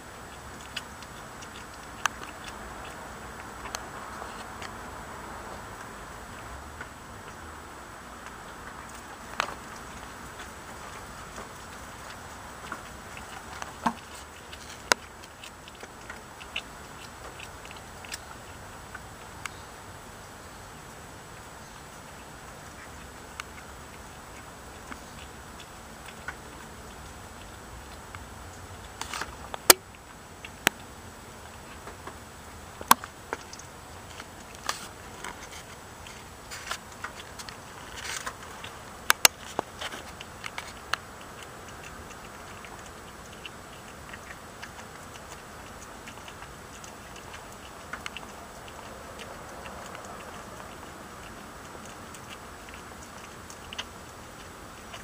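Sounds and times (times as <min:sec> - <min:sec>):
kitten chewing fish: 0:00.0 - 0:55.0.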